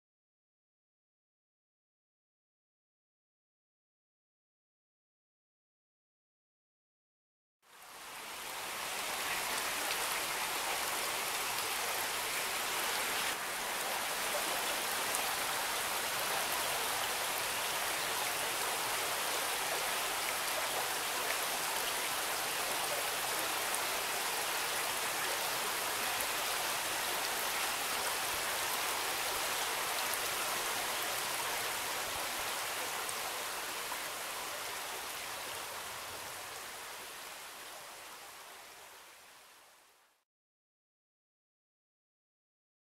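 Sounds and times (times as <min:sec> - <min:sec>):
creek water rushing over rocks: 0:07.8 - 0:39.6.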